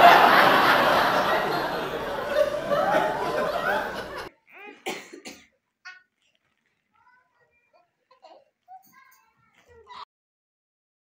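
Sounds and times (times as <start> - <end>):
laughter: 0.0 - 4.3
voices: 0.0 - 10.0.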